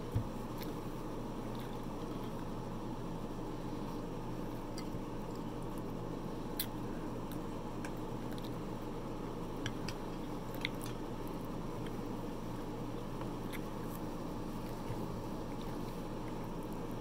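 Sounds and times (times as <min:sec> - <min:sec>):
steady background hum: 0:00.0 - 0:17.0
chewing and mouth sounds: 0:04.4 - 0:05.9, 0:06.5 - 0:08.7, 0:09.6 - 0:12.1, 0:13.0 - 0:17.0.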